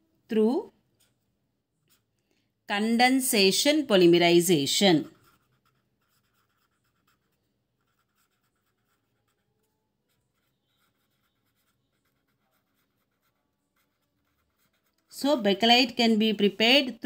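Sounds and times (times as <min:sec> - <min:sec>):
felt-tip pen writing on paper: 0:05.0 - 0:15.2.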